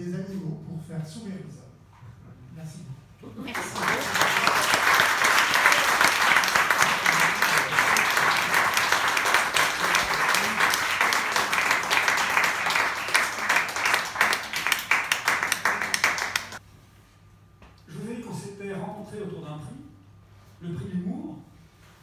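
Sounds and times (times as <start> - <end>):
audience applauding: 3.5 - 16.6.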